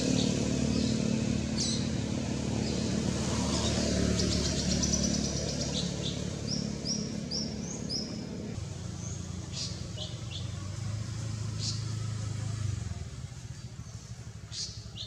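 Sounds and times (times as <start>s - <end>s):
birds chirping: 0.0s - 15.0s
engine humming: 0.0s - 15.0s.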